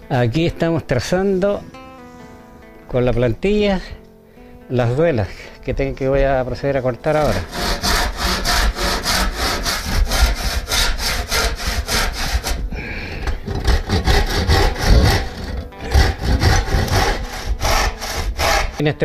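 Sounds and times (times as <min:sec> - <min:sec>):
handsaw cutting wood: 0:07.1 - 0:18.9.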